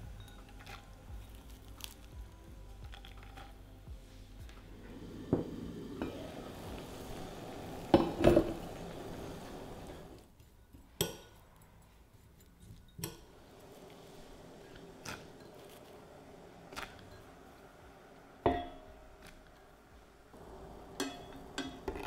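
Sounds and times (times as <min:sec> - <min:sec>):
simmering water hissing: 0:04.8 - 0:10.2
clinks against a pot: 0:18.5 - 0:18.9, 0:20.9 - 0:22.0
metal spoon clinking ceramic bowl: 0:21.0 - 0:22.0.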